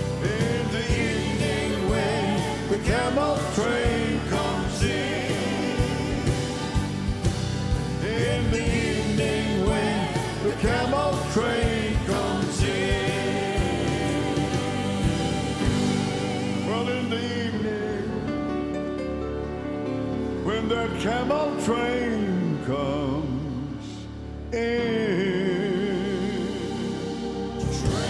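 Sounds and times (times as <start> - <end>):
singers with vibrato voices: 0.0 - 7.2, 8.0 - 18.2, 24.8 - 28.0
steady drum beat: 0.0 - 17.2, 26.0 - 28.0
grand piano: 0.0 - 28.0.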